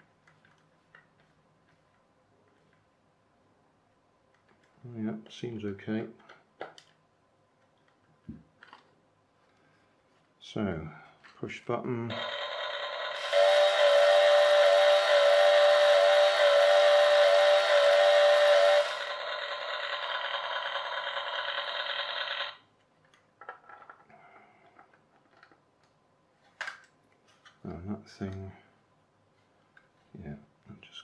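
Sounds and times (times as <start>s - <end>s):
plastic parts clicking: 6.2s - 7.0s, 7.7s - 8.9s, 22.9s - 26.0s
toy chainsaw cutting sound: 12.1s - 22.6s
toy chainsaw engine sound effect: 12.1s - 22.6s.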